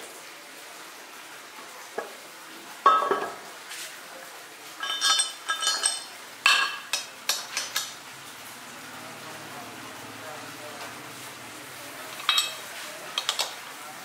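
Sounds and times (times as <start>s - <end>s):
steel rod clinking on metal: 4.8s - 7.9s, 12.2s - 12.6s.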